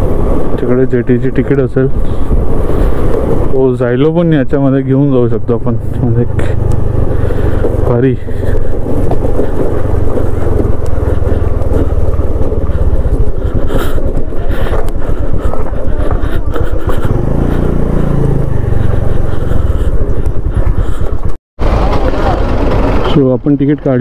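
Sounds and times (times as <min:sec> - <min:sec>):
wind buffeting microphone: 0:00.0 - 0:23.9
scooter engine running: 0:05.8 - 0:24.0.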